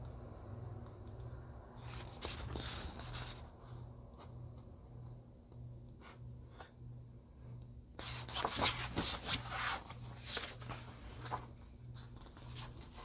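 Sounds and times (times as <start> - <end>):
book pages rustling: 1.8 - 4.4, 8.0 - 13.0.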